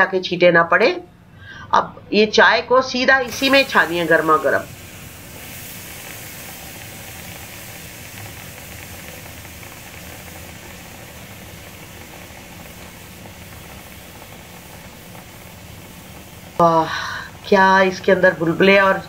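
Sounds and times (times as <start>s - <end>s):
tea sizzling and bubbling: 3.2s - 19.0s.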